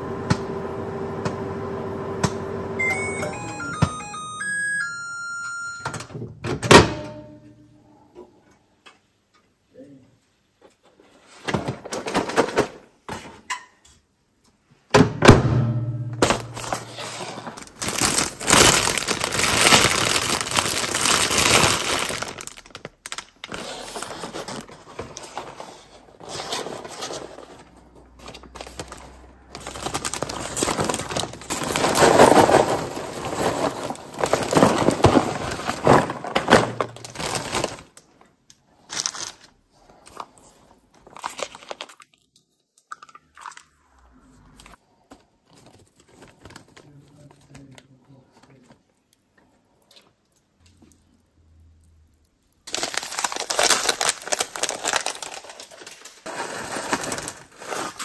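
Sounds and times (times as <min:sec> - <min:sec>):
popcorn rustling into bag: 0:16.4 - 0:42.2, 0:52.6 - 0:58.0
plastic bag crinkling: 0:16.4 - 0:42.3, 0:52.3 - 0:58.0.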